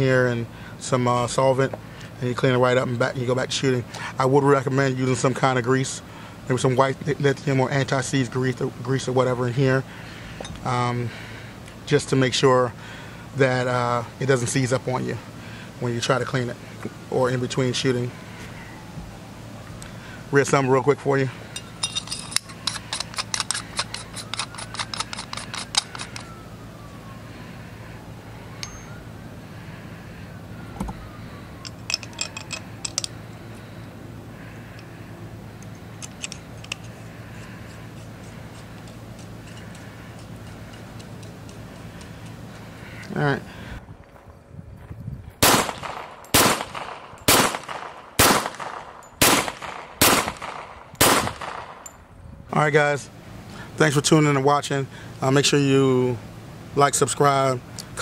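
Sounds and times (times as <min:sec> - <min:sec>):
distant siren: 0:04.6 - 0:44.7
metal parts clicking together: 0:21.6 - 0:26.3, 0:31.6 - 0:33.2, 0:35.6 - 0:42.6
suppressed pistol shots: 0:45.4 - 0:51.8.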